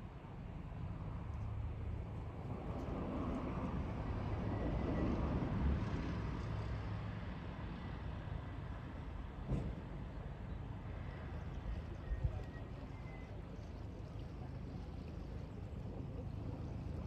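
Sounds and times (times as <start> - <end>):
low engine rumble: 7.7 - 17.0.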